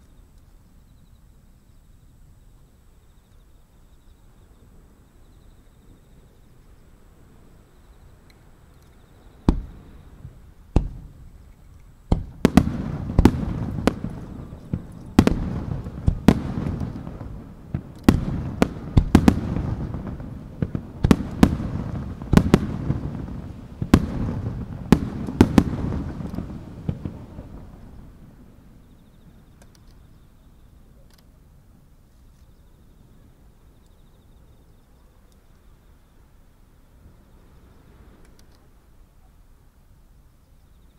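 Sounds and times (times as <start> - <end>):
firework shells bursting: 9.4 - 27.8.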